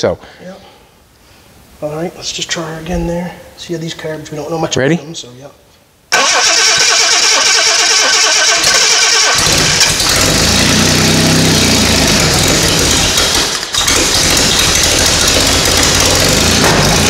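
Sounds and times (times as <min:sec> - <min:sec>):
starter motor cranking: 0:06.1 - 0:17.0
car engine running: 0:08.6 - 0:17.0.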